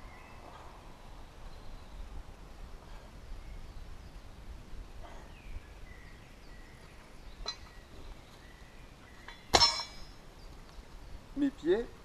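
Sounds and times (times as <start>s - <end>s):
faint birdsong: 0.0s - 12.0s
light metallic clink: 7.4s - 7.8s, 9.2s - 10.2s.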